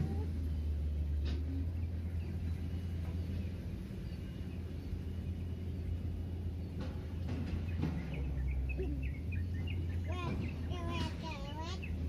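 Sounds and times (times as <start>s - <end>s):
faint bird chirps: 7.5s - 12.0s.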